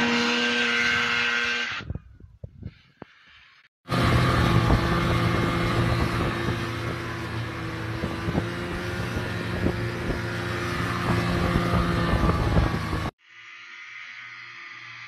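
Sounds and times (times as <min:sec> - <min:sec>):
snowmobile engine running: 0:03.9 - 0:13.1.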